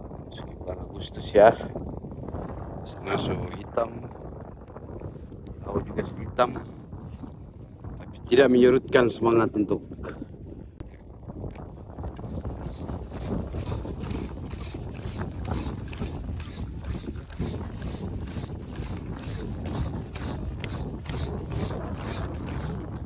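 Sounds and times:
low wind noise: 0:00.0 - 0:23.0
fishing reel ratcheting clicks: 0:12.7 - 0:22.8.

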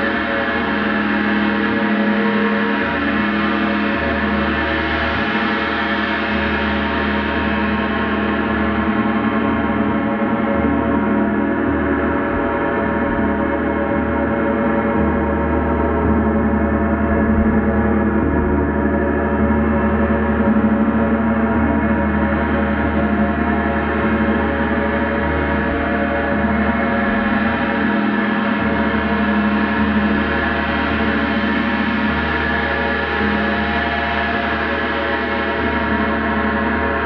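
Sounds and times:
gong ringing continuously: 0:00.0 - 0:37.0.

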